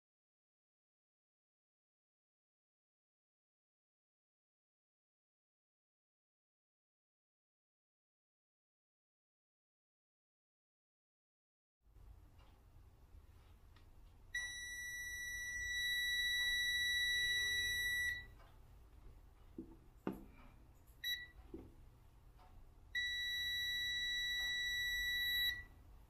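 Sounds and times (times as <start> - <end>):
faint low hum: 11.9 - 26.0
high-pitched multimeter beep: 14.4 - 18.4, 21.0 - 21.4, 22.9 - 25.8
handling knock: 19.6 - 20.4.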